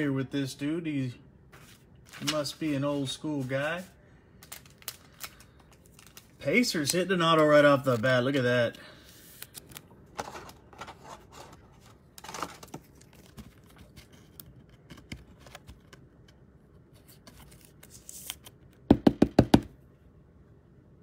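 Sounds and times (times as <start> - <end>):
card scraping in plastic sleeve: 1.6 - 16.0, 17.0 - 18.6.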